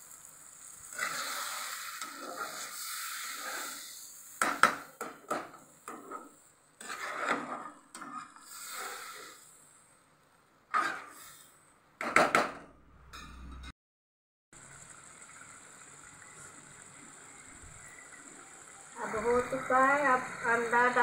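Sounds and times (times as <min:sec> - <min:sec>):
water pouring into hot pan: 0:00.0 - 0:05.0, 0:14.6 - 0:21.0
metal spatula scraping pan: 0:00.9 - 0:04.0, 0:05.8 - 0:09.4, 0:10.7 - 0:11.4.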